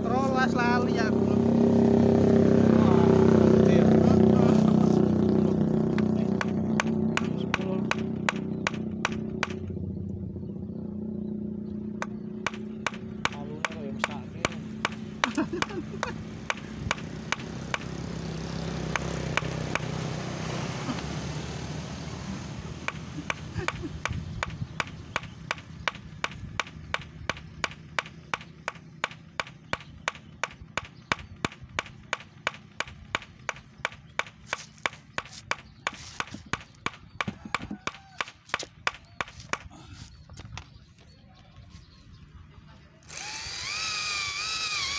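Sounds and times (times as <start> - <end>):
low rumble: 0.0 - 13.3
hammer striking concrete: 5.9 - 9.7, 12.0 - 18.0, 18.8 - 19.9, 22.8 - 39.7.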